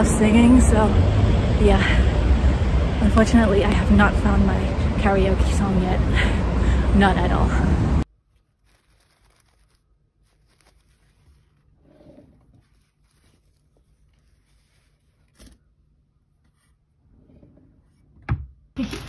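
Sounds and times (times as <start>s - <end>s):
paper package rustling: 8.1s - 15.7s.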